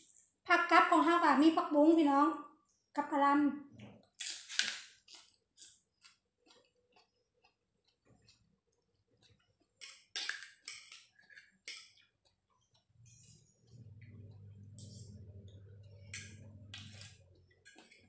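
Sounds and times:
chewing: 0:05.0 - 0:18.0.

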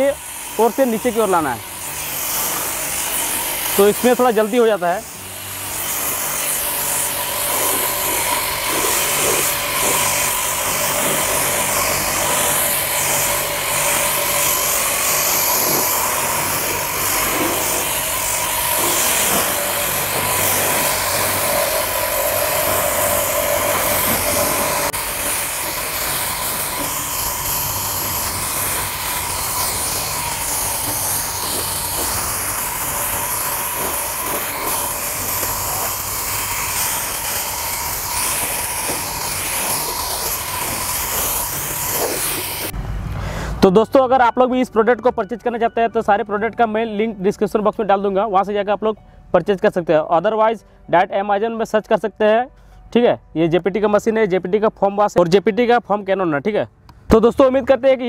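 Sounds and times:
water jet hissing: 0:00.0 - 0:42.8
pressure washer motor humming: 0:00.0 - 0:44.9.

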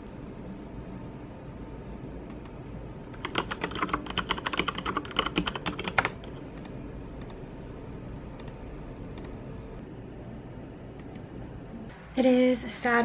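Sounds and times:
typing on computer keyboard: 0:03.2 - 0:07.4.

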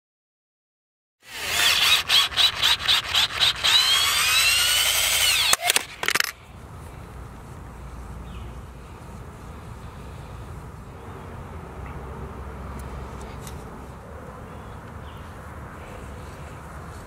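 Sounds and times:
power tool cutting plastic pipe: 0:01.2 - 0:06.3.

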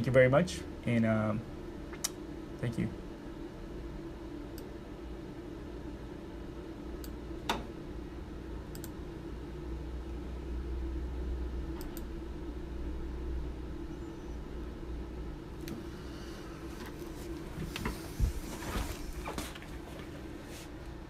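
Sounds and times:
low hum of equipment fans: 0:00.0 - 0:21.0
computer mouse clicks: 0:08.7 - 0:09.0.

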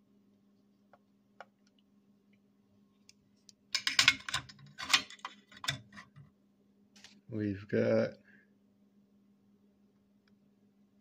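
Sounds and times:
metallic clicks and scrapes: 0:03.8 - 0:06.2.

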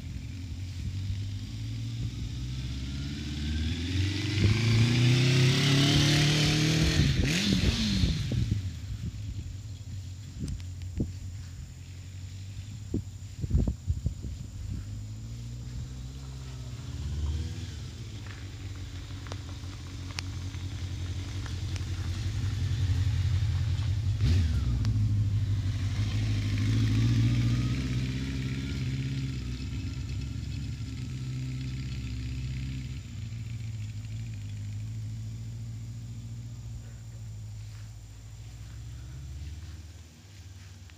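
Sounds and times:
motorcycle engine passing by: 0:00.0 - 0:10.4, 0:11.1 - 0:40.9.

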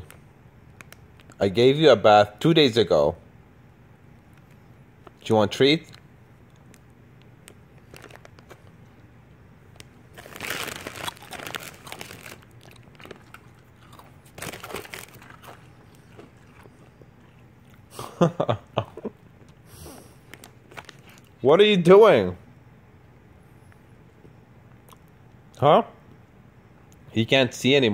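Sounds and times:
dog crunching a hard treat: 0:07.4 - 0:08.8, 0:10.1 - 0:17.9.

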